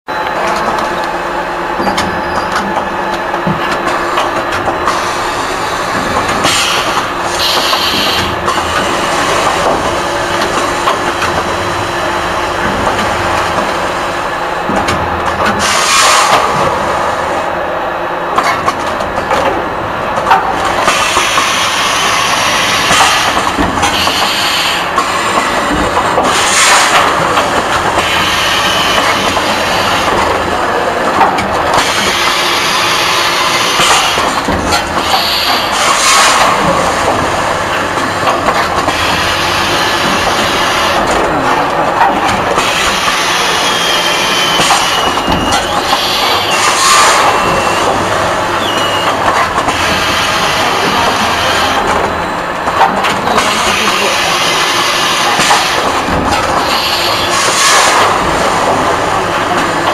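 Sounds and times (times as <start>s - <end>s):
pneumatic cylinder hissing: 6.4s - 8.4s, 56.6s - 58.1s.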